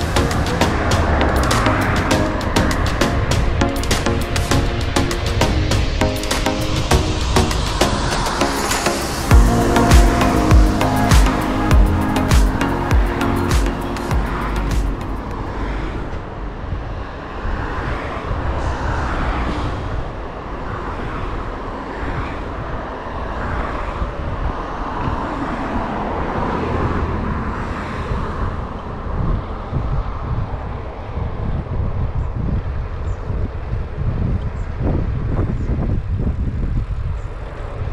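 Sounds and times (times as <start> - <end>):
cars passing: 0.0 - 37.9
wind rumbling on microphone: 13.8 - 37.9.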